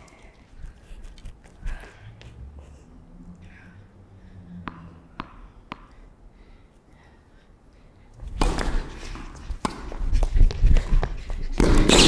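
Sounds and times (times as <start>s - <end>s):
tennis racket hitting ball: 4.6s - 5.9s, 8.3s - 10.3s, 11.6s - 12.0s
tennis ball bouncing on hard court: 4.6s - 6.0s, 8.3s - 11.0s, 11.6s - 12.0s.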